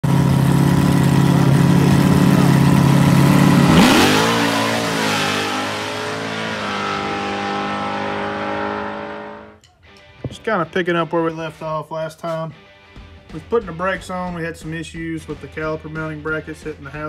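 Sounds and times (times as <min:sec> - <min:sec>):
race car engines accelerating: 0:00.0 - 0:09.6.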